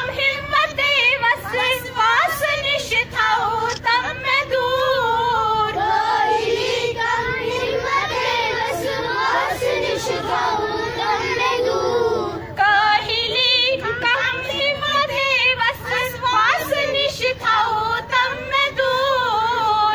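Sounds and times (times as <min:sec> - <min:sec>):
children and women singing a prayer: 0:00.0 - 0:19.9
woman singing over a loudspeaker: 0:00.0 - 0:19.9.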